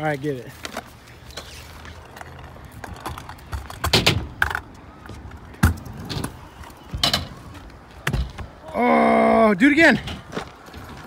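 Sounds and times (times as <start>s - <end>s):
scooter wheels rolling on concrete: 0.0s - 11.0s
scooter clattering knocks: 2.8s - 4.7s.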